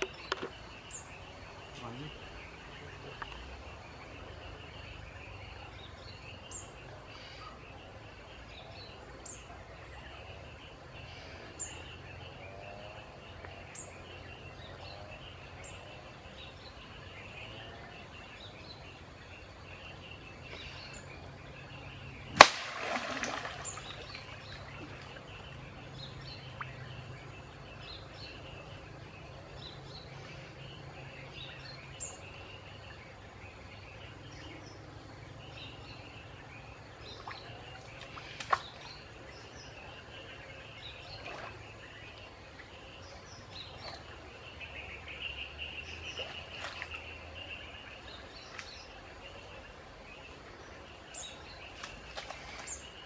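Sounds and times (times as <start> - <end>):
birds chirping: 0.0 - 53.0
insects buzzing: 10.3 - 53.0
spear striking water: 22.4 - 24.0
water splashing: 22.4 - 25.6.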